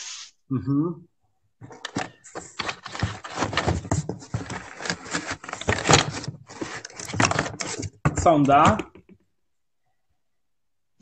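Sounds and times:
cardboard box rustling and scraping: 0:01.7 - 0:08.9.

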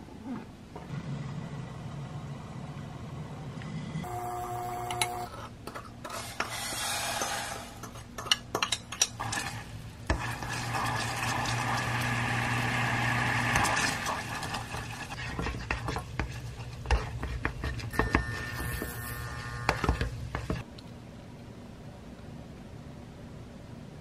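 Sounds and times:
syrup bubbling and sizzling: 0:09.2 - 0:20.6
spoon scraping glass bowl: 0:15.1 - 0:20.6.

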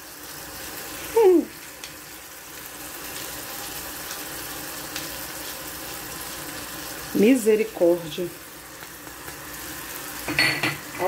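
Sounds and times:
meat sizzling in a saucepan: 0:00.0 - 0:11.0.

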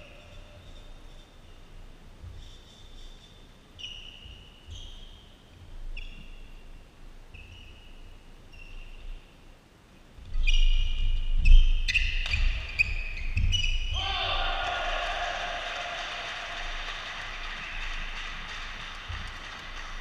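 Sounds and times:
sneakers squeaking on court floor: 0:03.8 - 0:06.7, 0:07.3 - 0:09.3, 0:10.3 - 0:14.0.

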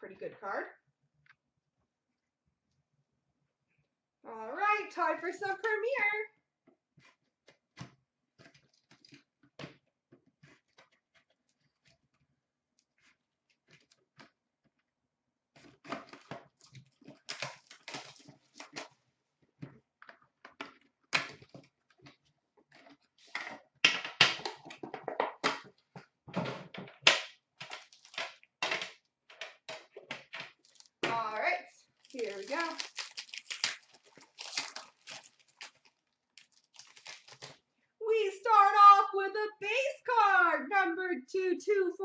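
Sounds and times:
packaging crinkling and tearing: 0:15.6 - 0:19.0, 0:27.6 - 0:28.4, 0:30.4 - 0:31.0, 0:31.9 - 0:37.7.

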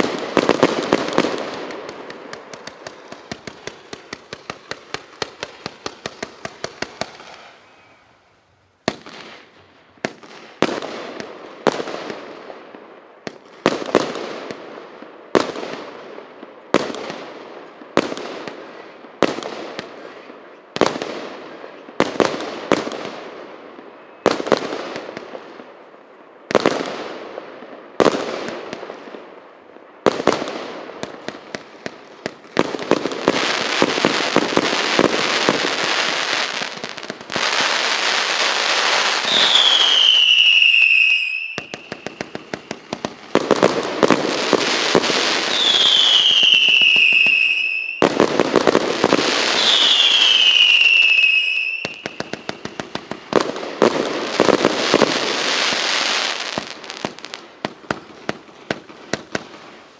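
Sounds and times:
firework bangs: 0:00.0 - 0:08.1, 0:08.8 - 0:12.6, 0:30.0 - 0:59.9
firework crackling: 0:00.0 - 0:25.7, 0:26.5 - 0:59.9.

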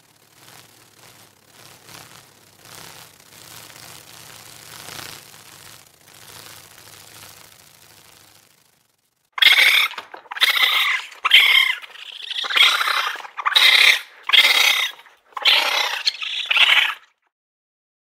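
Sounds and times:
raccoon dog raspy calls: 0:09.4 - 0:17.1.

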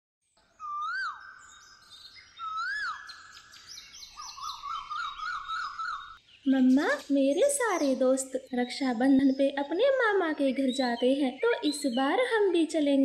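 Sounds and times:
swooping bird-like whistles: 0:00.6 - 0:06.2.

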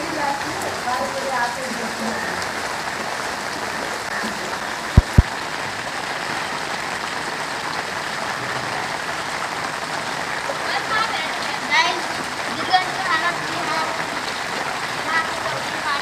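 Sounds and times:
rain on water and pavement: 0:00.0 - 0:16.0
loud low thumps: 0:05.0 - 0:05.3.

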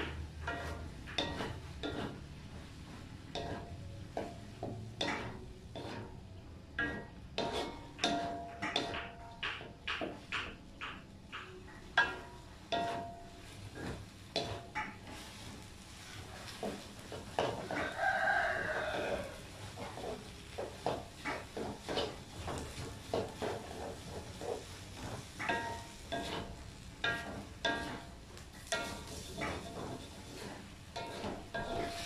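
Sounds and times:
wooden spatula scraping a wok: 0:00.0 - 0:32.0
rooster crowing: 0:17.6 - 0:19.5.

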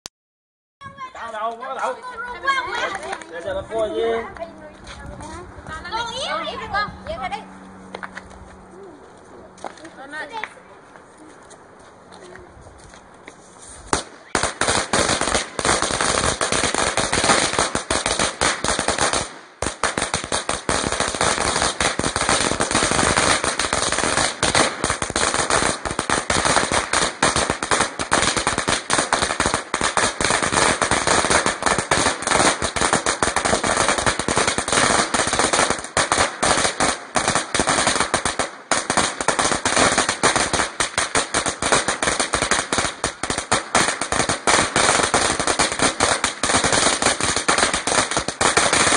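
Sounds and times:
firecrackers banging: 0:13.1 - 0:48.9.

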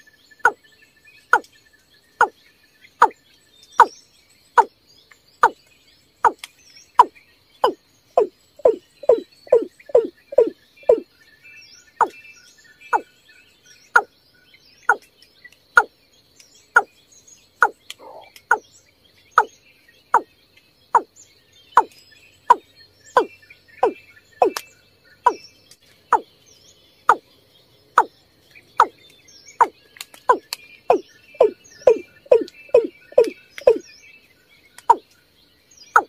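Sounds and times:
bird calling with low notes: 0:00.0 - 0:03.2, 0:03.8 - 0:04.8, 0:05.4 - 0:14.2, 0:16.7 - 0:26.3, 0:26.9 - 0:35.2, 0:35.8 - 0:36.0
small chirps: 0:04.6 - 0:11.0, 0:13.9 - 0:14.1, 0:20.9 - 0:21.2, 0:21.8 - 0:26.3, 0:27.9 - 0:33.9
high insect tone: 0:05.4 - 0:05.6, 0:06.2 - 0:11.1, 0:19.3 - 0:21.2, 0:21.8 - 0:24.6, 0:27.0 - 0:29.0, 0:29.6 - 0:33.9.

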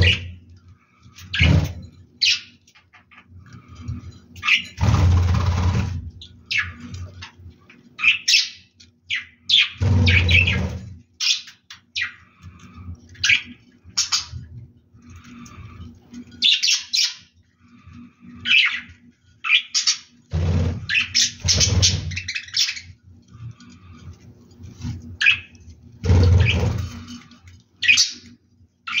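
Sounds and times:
bird chicks chirping and squawking: 0:00.0 - 0:29.0
low rubbing noise: 0:09.8 - 0:11.0, 0:20.2 - 0:22.3, 0:23.1 - 0:27.6.

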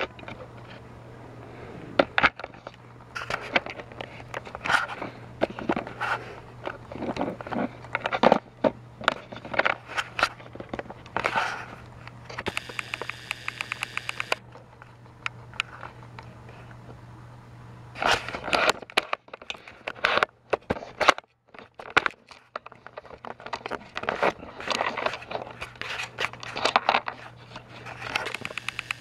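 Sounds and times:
low steady hum: 0:00.0 - 0:29.0
buzzing rattle of rapid clicks: 0:12.3 - 0:14.4, 0:28.0 - 0:29.0
plastic toy trains clicking: 0:27.9 - 0:29.0.

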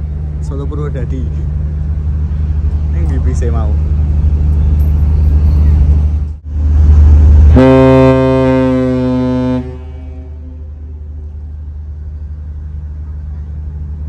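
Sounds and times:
ferry engines rumbling: 0:00.0 - 0:14.0
ship's horn blast: 0:06.6 - 0:11.2.

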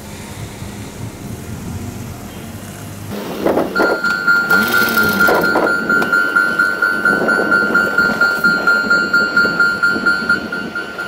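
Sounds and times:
level crossing bell ringing: 0:03.8 - 0:11.0.

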